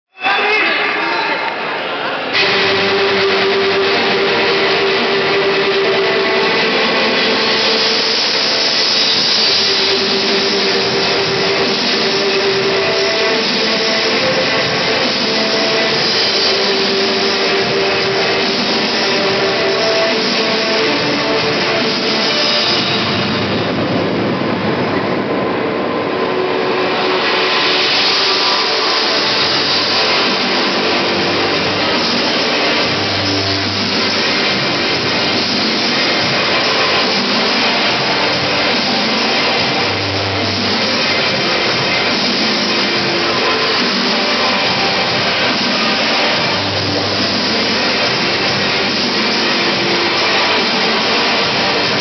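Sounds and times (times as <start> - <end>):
audience cheering and shouting: 0.1 - 6.7
loud distorted music over pa: 0.1 - 52.0.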